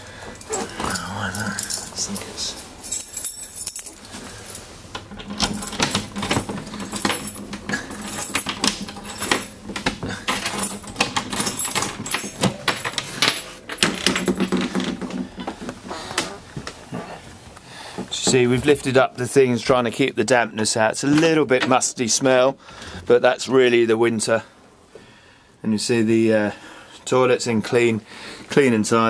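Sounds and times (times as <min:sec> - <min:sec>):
keys jangling: 0:00.4 - 0:14.6
key rattling in lock: 0:00.4 - 0:14.7.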